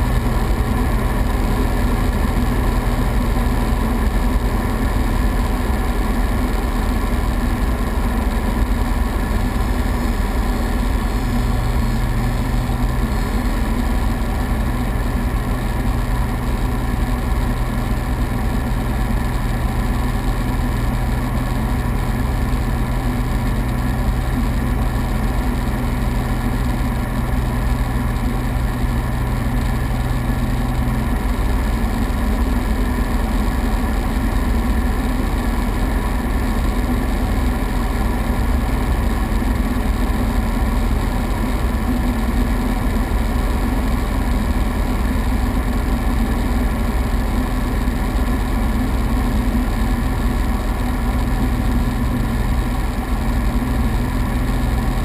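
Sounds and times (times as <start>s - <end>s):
propeller engine droning: 0.0s - 55.0s
cabin airflow noise: 7.2s - 15.8s.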